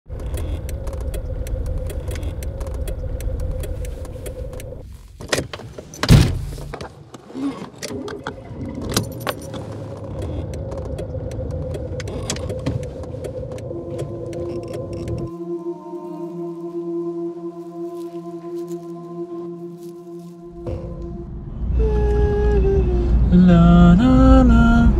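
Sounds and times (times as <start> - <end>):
car engine idling: 0.1 - 5.0
hazard-light relay ticking: 0.2 - 4.8.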